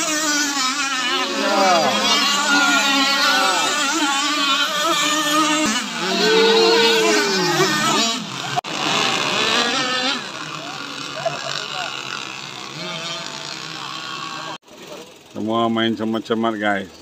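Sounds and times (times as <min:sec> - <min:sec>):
rc boat engines whining: 0:00.0 - 0:17.0.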